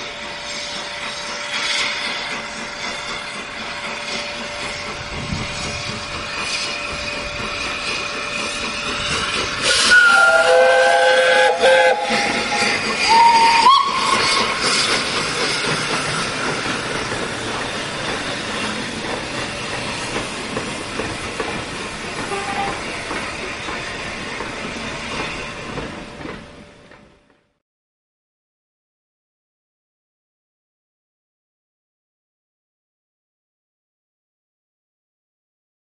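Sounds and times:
steam hissing: 0:00.0 - 0:27.2.

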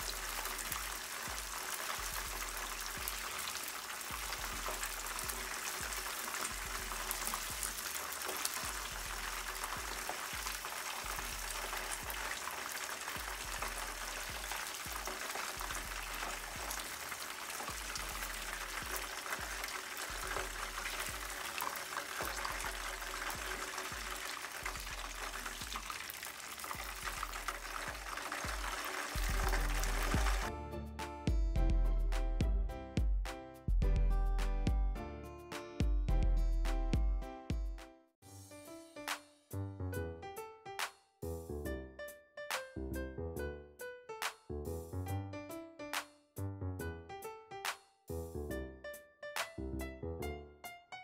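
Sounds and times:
food deep-frying in oil: 0:00.0 - 0:30.5.

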